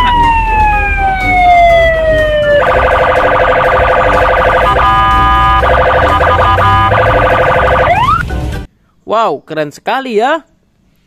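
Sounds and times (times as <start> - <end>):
police siren wailing and yelping: 0.0 - 8.2.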